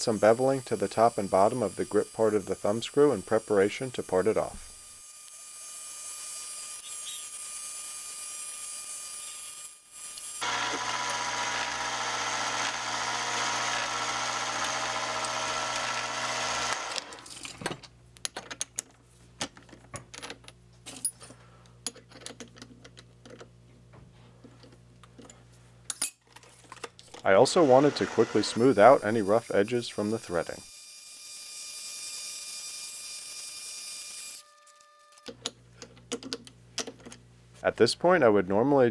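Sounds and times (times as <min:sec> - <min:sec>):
metal lathe motor whine: 0:10.4 - 0:17.3, 0:27.5 - 0:29.6.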